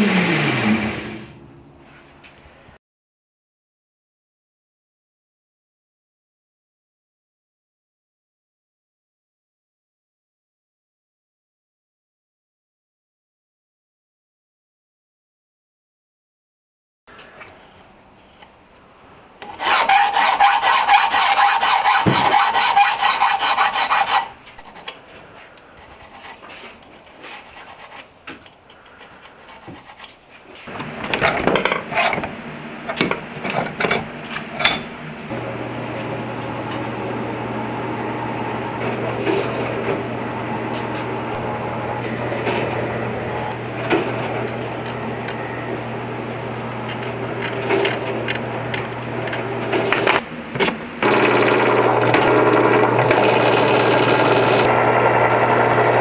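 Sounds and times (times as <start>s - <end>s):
steady low hum: 1.2s - 2.7s
file rasping on brass: 19.4s - 25.0s, 28.9s - 30.1s.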